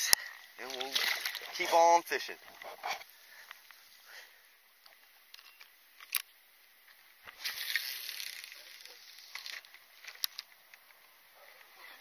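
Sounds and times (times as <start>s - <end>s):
water splashing: 0.6s - 2.3s.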